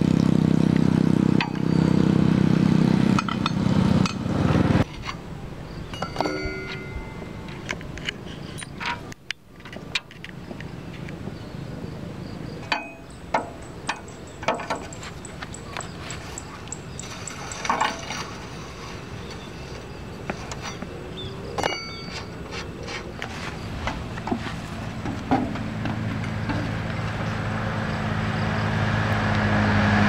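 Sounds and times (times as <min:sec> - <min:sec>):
steel tools clinking and clanking: 0:03.2 - 0:04.2, 0:05.9 - 0:10.3, 0:12.6 - 0:18.5, 0:20.4 - 0:20.9, 0:21.6 - 0:23.3.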